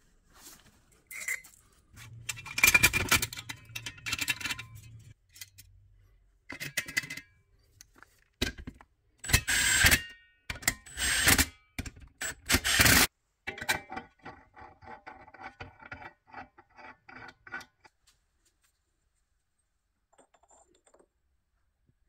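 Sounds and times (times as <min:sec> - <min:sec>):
metal parts scraping: 0:01.0 - 0:05.7.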